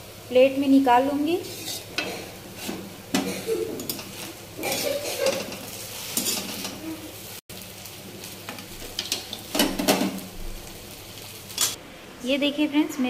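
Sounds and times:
metal spatula scraping steel pan: 1.4s - 2.9s, 3.8s - 6.8s.

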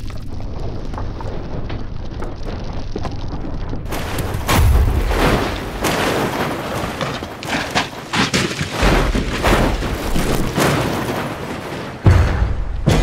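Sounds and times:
dirt and gravel scraping: 0.7s - 12.2s
car crashing and thudding on ground: 3.9s - 13.0s.

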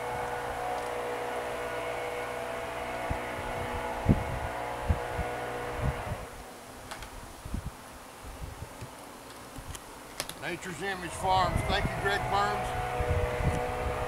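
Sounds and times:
honeybees buzzing: 0.0s - 6.8s, 9.9s - 14.0s.

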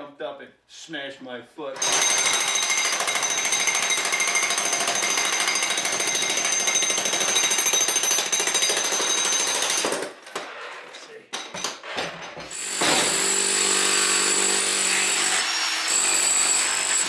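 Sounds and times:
demolition hammer chipping concrete: 1.8s - 10.1s, 12.5s - 17.0s.

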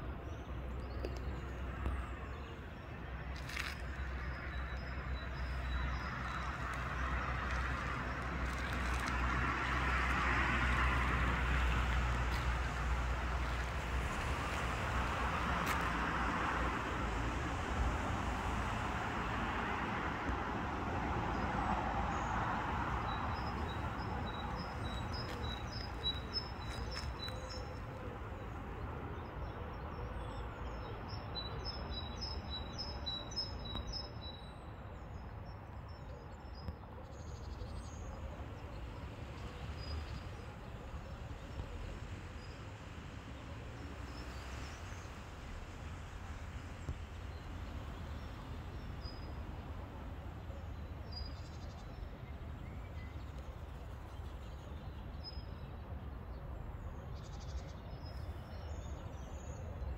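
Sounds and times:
distant traffic noise: 0.0s - 59.9s
songbird chirping: 21.4s - 28.6s.

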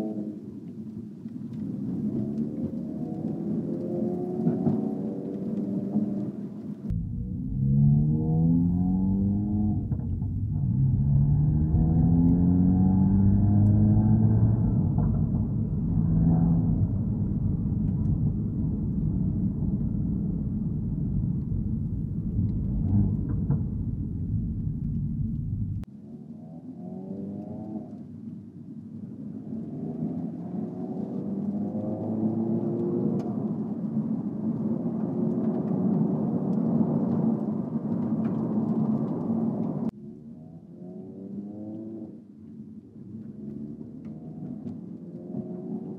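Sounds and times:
road rumble: 0.0s - 26.2s, 26.8s - 45.9s
car engine drone from cabin: 5.9s - 25.9s.

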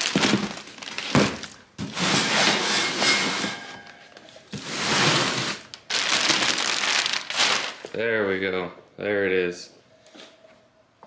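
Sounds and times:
cardboard and plastic wrap rustling: 0.0s - 8.0s
box thunk on hard floor: 0.1s - 2.0s.

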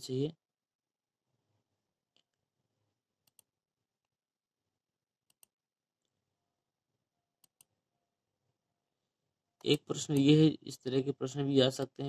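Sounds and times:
computer mouse clicks: 3.2s - 3.5s, 5.2s - 6.1s, 7.4s - 7.7s.

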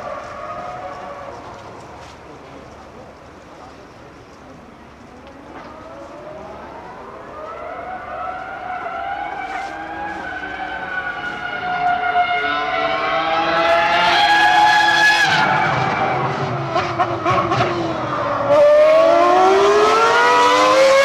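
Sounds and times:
racing car engine at high revs: 5.4s - 21.0s.

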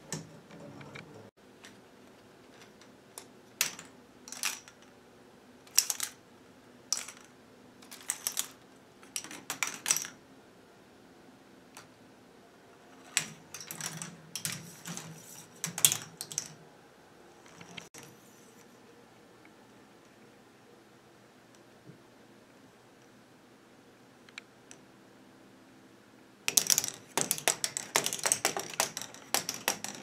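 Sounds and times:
plastic balls clattering through tracks: 6.9s - 7.3s, 7.9s - 10.2s, 13.0s - 16.6s, 26.5s - 30.0s.

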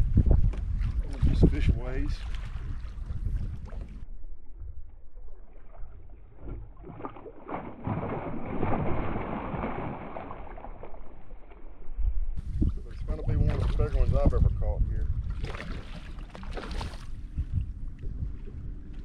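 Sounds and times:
wind noise on microphone: 0.0s - 5.0s, 11.8s - 19.0s
fish thrashing and splashing water: 5.7s - 11.2s, 15.3s - 17.2s.

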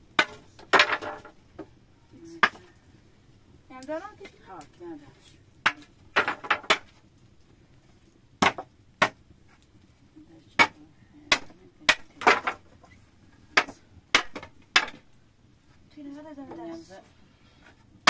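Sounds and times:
sharp knocks: 13.6s - 15.1s.

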